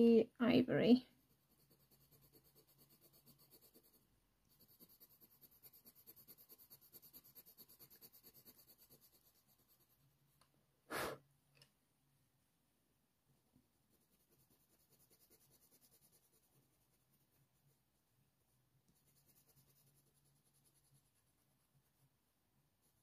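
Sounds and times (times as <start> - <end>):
pencil scratching on paper: 1.1 - 10.1, 13.8 - 17.9, 18.9 - 22.2, 22.8 - 23.0.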